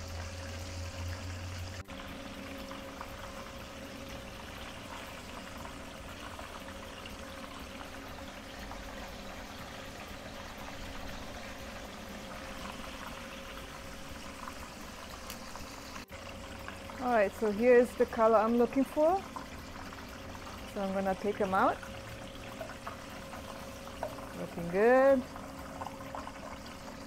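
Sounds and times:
oil sizzling in a pan: 0:00.0 - 0:27.0.

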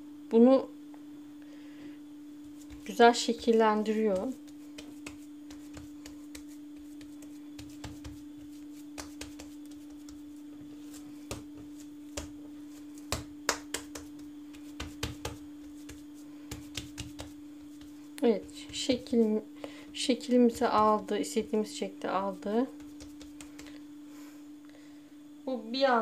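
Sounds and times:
steady low hum: 0:00.0 - 0:26.0
hands slapping meat: 0:04.1 - 0:19.2, 0:22.8 - 0:23.8.

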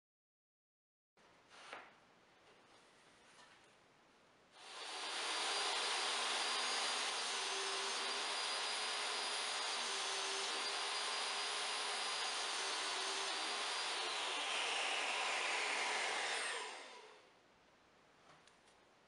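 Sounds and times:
table saw motor running: 0:04.6 - 0:17.2.

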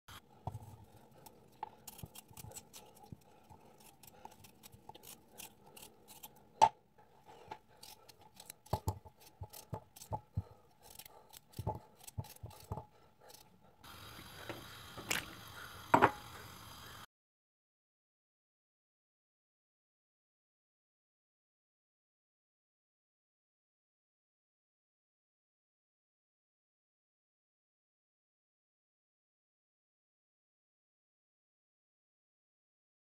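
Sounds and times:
knife cutting potatoes: 0:00.1 - 0:13.6
steady hiss: 0:13.9 - 0:17.1.

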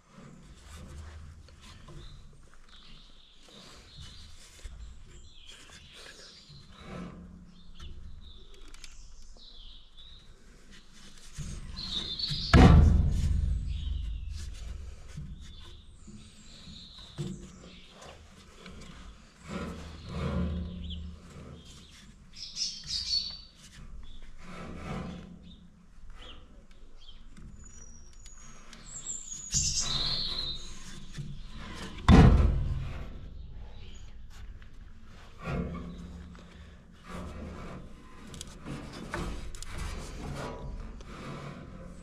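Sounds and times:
birds chirping: 0:11.6 - 0:12.7, 0:13.5 - 0:24.2, 0:26.2 - 0:32.0.

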